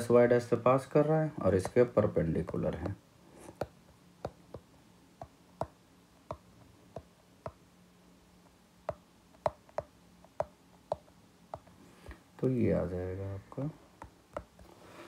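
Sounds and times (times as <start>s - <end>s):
faint low hum: 0.0s - 15.0s
stylus tapping on glass screen: 3.6s - 7.6s, 8.9s - 11.7s.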